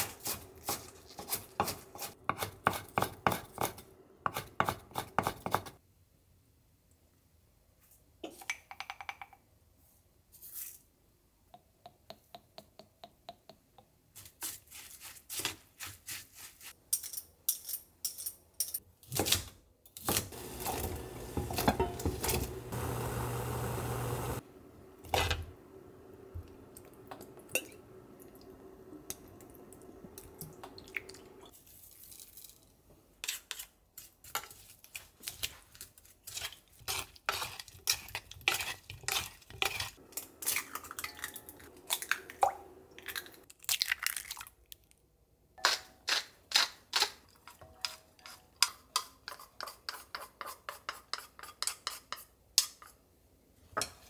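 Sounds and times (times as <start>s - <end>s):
wooden spoon mixing in bowl: 20.3s - 24.4s, 36.2s - 41.3s.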